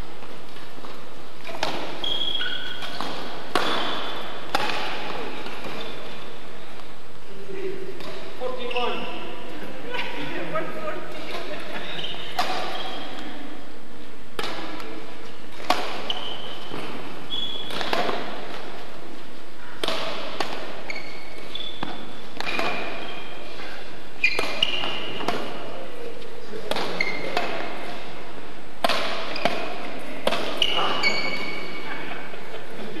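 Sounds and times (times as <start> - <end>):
shoes squeaking on hall floor: 0.0 - 7.0, 7.6 - 13.7, 14.4 - 33.0
racket striking shuttlecock: 0.5 - 6.1, 12.2 - 13.3, 14.3 - 19.0, 19.8 - 25.7, 26.7 - 28.2, 28.8 - 31.8.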